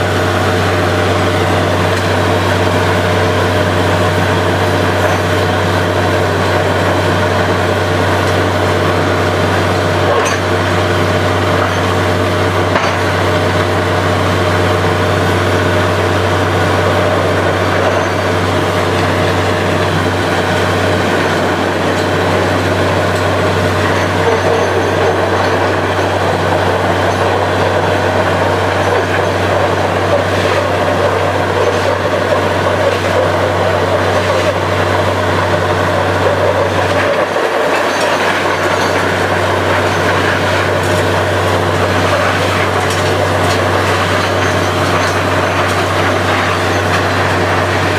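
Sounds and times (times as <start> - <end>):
drilling rig machine drone: 0.0 - 47.9.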